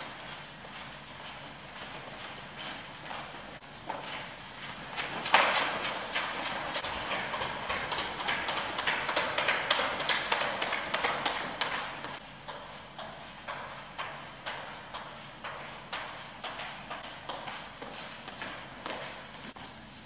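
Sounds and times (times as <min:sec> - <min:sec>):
shoe steps: 0:00.0 - 0:20.0
wet mop swishing on floor: 0:15.6 - 0:20.0.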